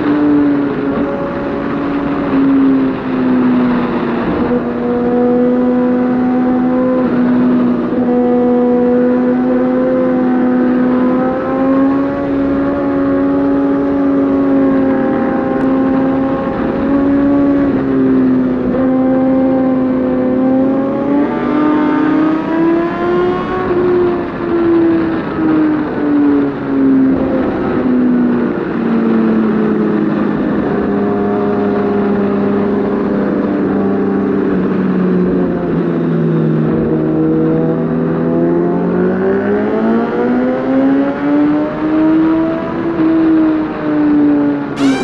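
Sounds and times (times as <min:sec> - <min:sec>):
motorcycle engine revving high: 0:44.8 - 0:45.0.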